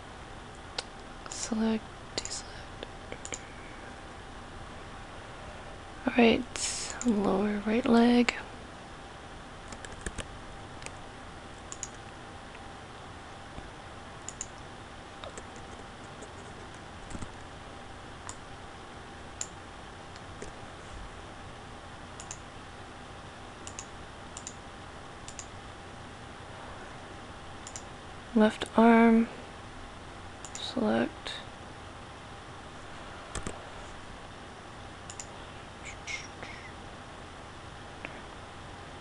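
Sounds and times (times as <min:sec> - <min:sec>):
faint hum: 0:00.0 - 0:39.0
mouse and keyboard clicks: 0:11.7 - 0:12.0, 0:14.3 - 0:14.6, 0:22.2 - 0:22.4, 0:23.6 - 0:24.6, 0:33.3 - 0:33.6, 0:35.1 - 0:35.3.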